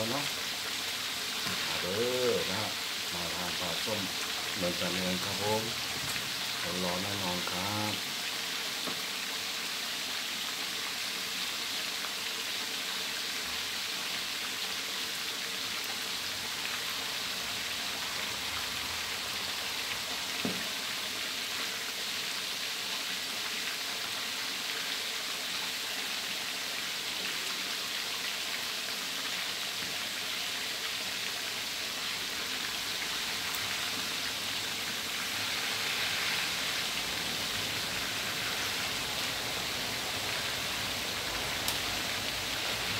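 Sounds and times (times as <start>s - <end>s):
fish deep-frying in hot oil: 0.0s - 42.9s.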